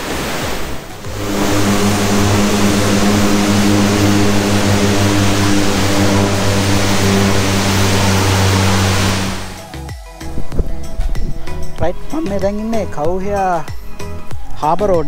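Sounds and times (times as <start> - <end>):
wind noise: 0.0 - 9.7, 10.3 - 12.2
road noise: 0.0 - 9.8
car engine humming: 0.6 - 9.8.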